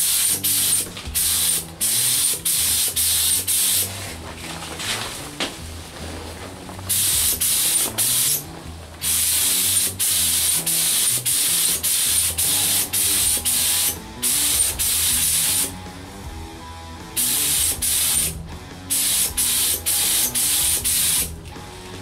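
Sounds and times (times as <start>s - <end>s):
spray gun hissing: 0.0s - 4.1s, 6.9s - 15.7s, 17.2s - 21.4s
faint background music: 0.0s - 22.0s.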